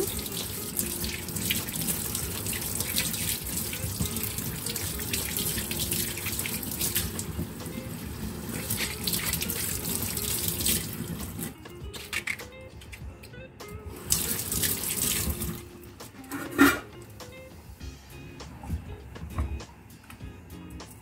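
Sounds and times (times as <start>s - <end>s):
tap running into sink: 0.0s - 11.5s
water splashing off corn: 8.4s - 11.6s.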